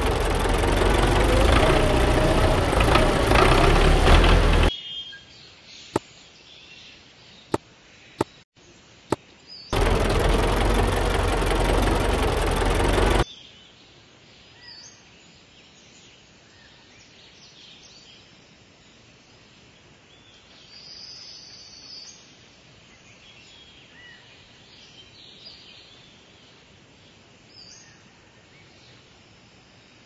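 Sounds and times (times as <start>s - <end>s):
tractor engine running: 0.0s - 4.7s, 9.7s - 13.2s.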